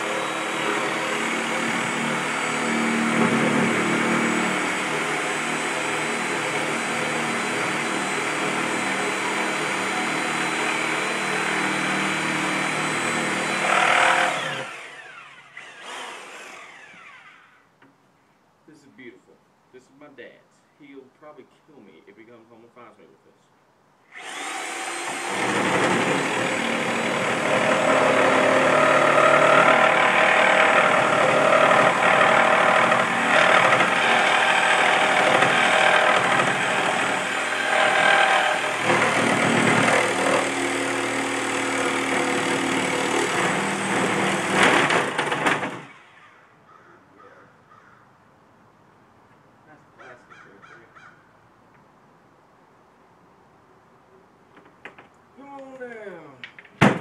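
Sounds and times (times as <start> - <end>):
reciprocating saw cutting: 0.0 - 17.6, 24.1 - 46.2.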